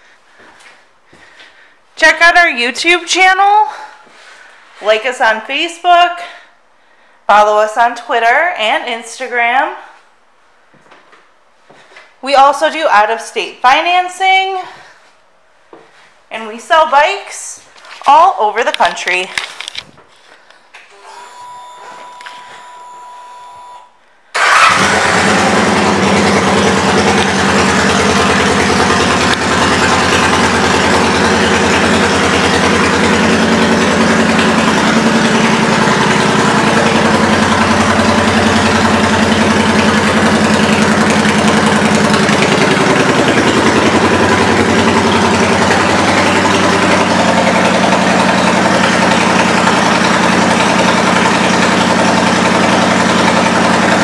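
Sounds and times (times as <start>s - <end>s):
motorcycle engine idling: 24.4s - 54.0s.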